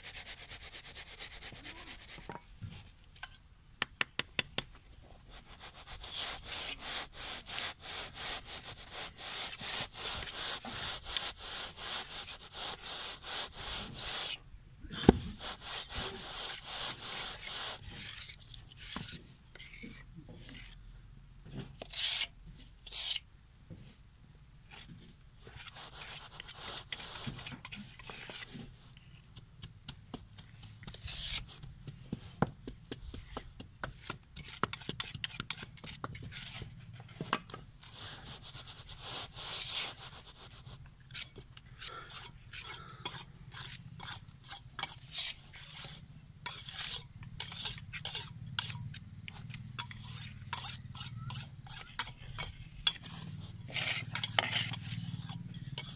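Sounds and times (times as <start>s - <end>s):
grit and tool clicking on metal: 6.0s - 14.4s, 21.8s - 23.2s, 24.7s - 29.7s, 33.2s - 40.5s, 41.1s - 55.9s
wet concrete scraping in metal mould: 25.5s - 29.4s, 41.2s - 48.8s, 49.8s - 55.9s.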